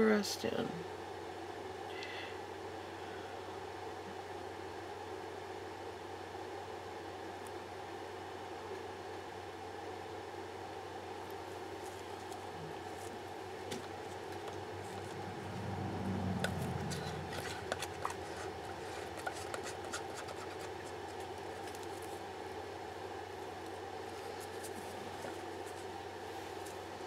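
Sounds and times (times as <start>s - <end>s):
steady low hum: 0.0s - 27.0s
stir stick scraping a cup: 16.4s - 21.8s.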